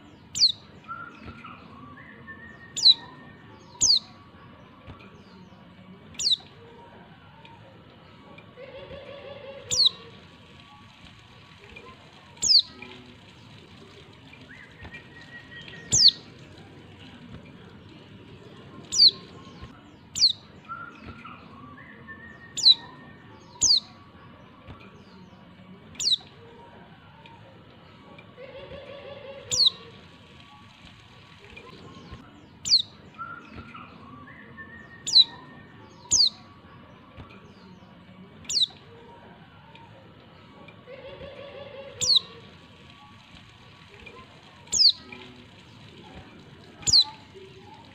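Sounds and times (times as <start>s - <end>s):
bird sharp high calls: 12.4s - 12.7s, 14.6s - 16.3s, 29.5s - 29.8s, 32.6s - 36.4s, 42.0s - 42.3s, 44.7s - 45.0s.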